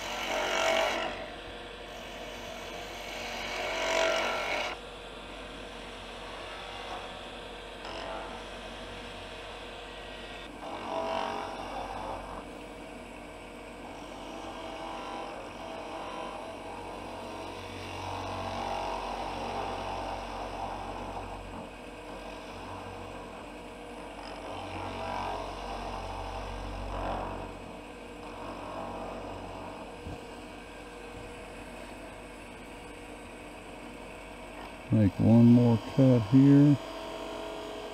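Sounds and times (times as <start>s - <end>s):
gouge cutting wood: 0.0s - 1.3s, 1.9s - 4.8s
wood lathe motor humming: 0.0s - 37.9s.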